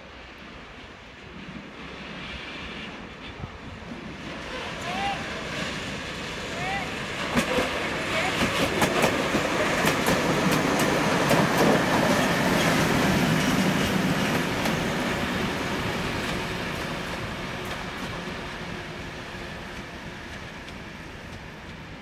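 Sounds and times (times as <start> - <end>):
train wheels clattering over rail joints: 7.2 - 15.2.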